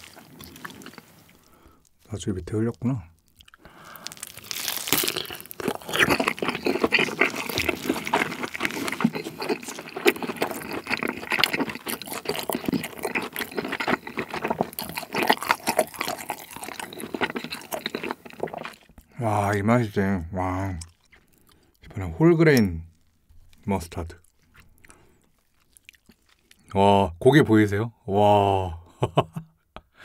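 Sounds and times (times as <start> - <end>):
close chewing with mouth smacks: 0.0 - 2.1, 3.1 - 19.2, 20.7 - 21.9, 22.6 - 26.7.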